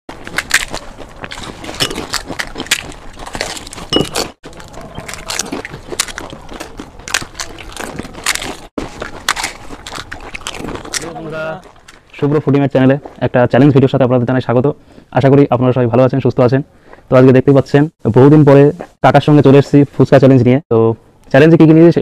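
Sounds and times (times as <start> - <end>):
crisp shells cracking and crunching: 0.1 - 12.1.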